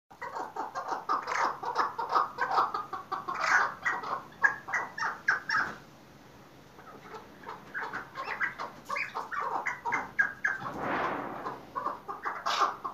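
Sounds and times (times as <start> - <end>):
partridge chicks calling: 0.2 - 5.8, 6.8 - 10.6.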